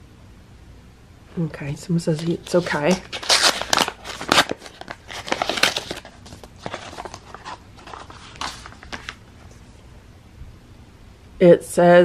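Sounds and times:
paper envelope rustling: 2.1s - 9.8s.

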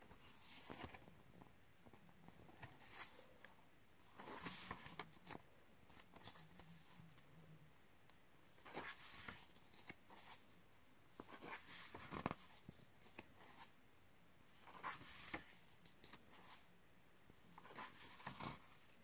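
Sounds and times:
paper pages rustling: 0.1s - 1.2s, 1.9s - 3.4s, 4.1s - 7.2s, 8.6s - 10.5s, 11.2s - 13.7s, 14.6s - 16.7s, 17.6s - 19.0s.

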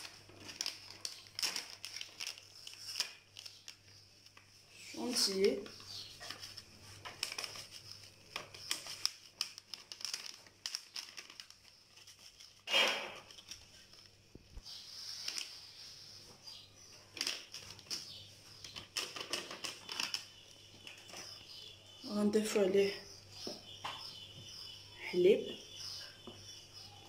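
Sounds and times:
foil sachet crinkling: 0.0s - 15.6s, 17.1s - 20.9s.

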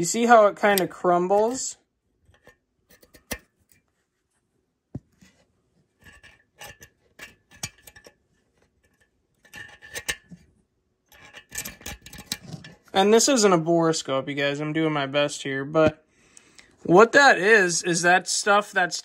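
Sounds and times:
pick scraping and tapping metal: 0.6s - 3.8s, 6.0s - 10.4s, 11.1s - 12.9s.

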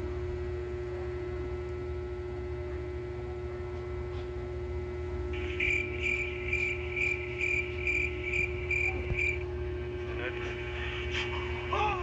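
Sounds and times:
steady low hum: 0.0s - 12.0s
cricket chirping: 5.4s - 9.5s.

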